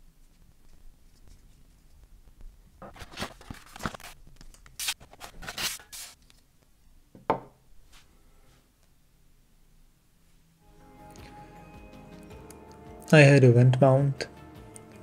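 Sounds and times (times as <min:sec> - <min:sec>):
cardboard and paper rustling: 0:02.8 - 0:06.4
object knocking on wooden table: 0:07.2 - 0:07.6.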